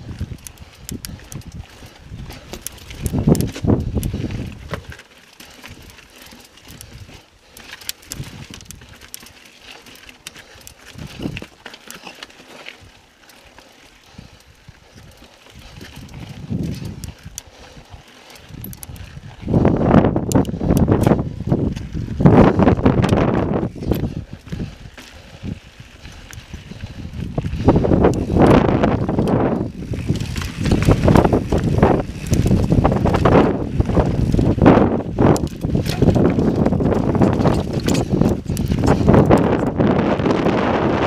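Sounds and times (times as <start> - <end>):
mountain bike rattling over rock: 0.0 - 41.0
ticks and clicks: 0.1 - 12.3, 20.2 - 21.2, 27.6 - 39.8.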